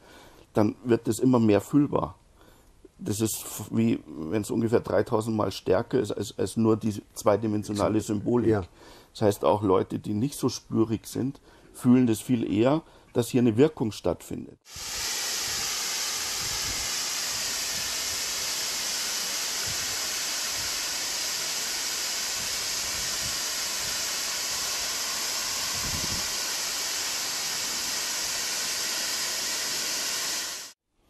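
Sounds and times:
shower head spraying water: 0:14.7 - 0:30.8.

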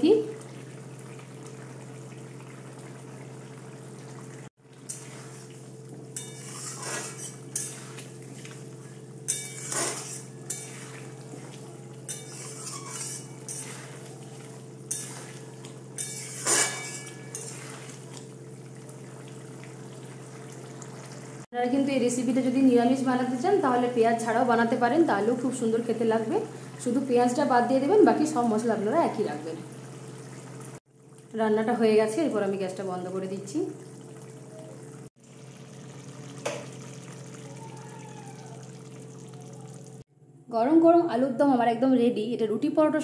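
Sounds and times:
curry simmering: 0:00.0 - 0:21.5, 0:33.0 - 0:40.0
metal spatula scraping pan: 0:06.2 - 0:08.2, 0:09.3 - 0:18.0.

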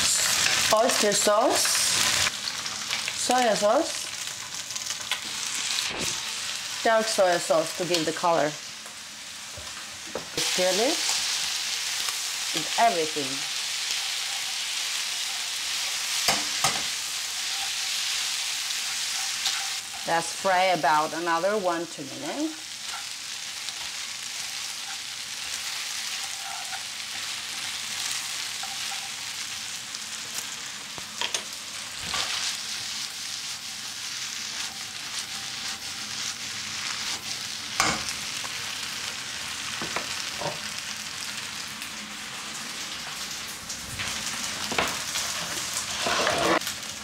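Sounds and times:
noodles sizzling in a frying pan: 0:00.0 - 0:47.0.

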